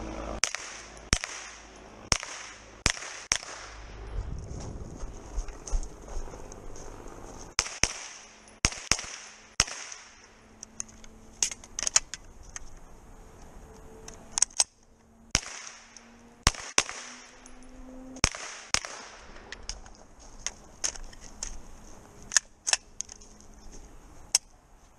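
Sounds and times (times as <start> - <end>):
carbine gunshots: 0.4 - 3.9, 7.6 - 10.3, 15.3 - 17.3, 18.2 - 19.4.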